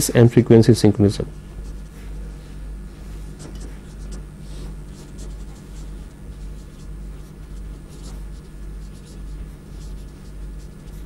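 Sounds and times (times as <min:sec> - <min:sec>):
low electrical hum: 0:00.0 - 0:11.0
pen or chalk scratching: 0:01.6 - 0:02.3, 0:03.2 - 0:11.0.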